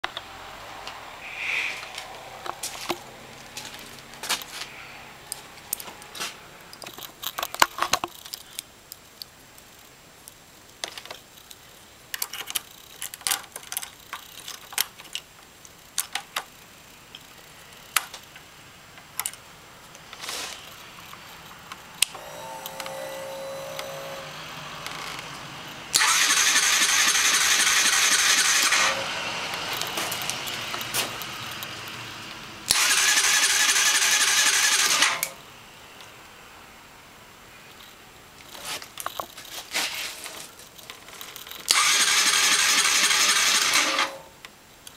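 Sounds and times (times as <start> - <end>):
faint hum: 0.1 - 6.8, 20.7 - 25.9
small clicks and rattles: 6.7 - 22.1, 37.7 - 39.6, 40.2 - 43.0
motorcycle starter cranking: 25.9 - 29.1, 32.7 - 35.4, 41.4 - 44.2.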